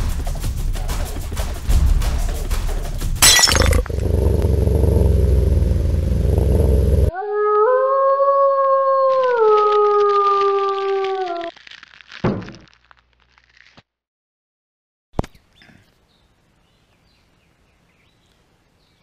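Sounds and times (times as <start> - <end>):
low rumbling: 3.3 - 7.1
wolf howling: 7.1 - 11.5.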